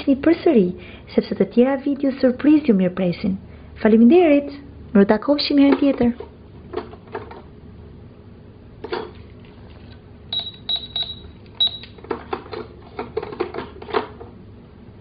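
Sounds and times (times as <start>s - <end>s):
high-pitched electronic beeps: 10.3s - 11.9s.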